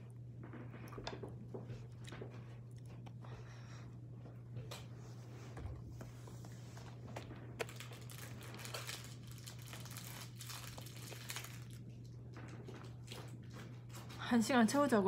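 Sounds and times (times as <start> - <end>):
steady low hum: 0.0 - 15.0
close rustling and crinkling: 4.8 - 14.3.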